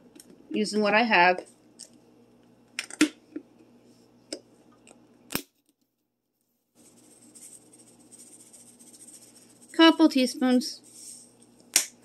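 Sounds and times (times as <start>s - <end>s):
seasoning shaken hiss and rattle: 6.8s - 11.5s.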